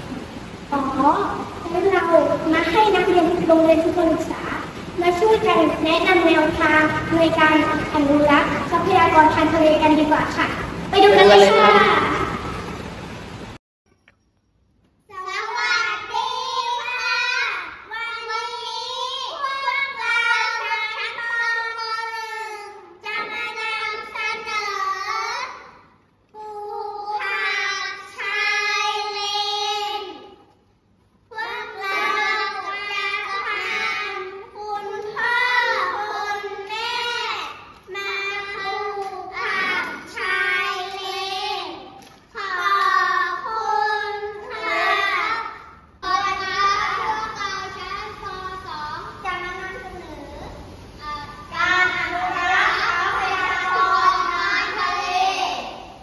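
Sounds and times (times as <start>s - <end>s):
children singing in unison: 15.1s - 25.7s, 26.4s - 30.4s, 31.3s - 56.0s.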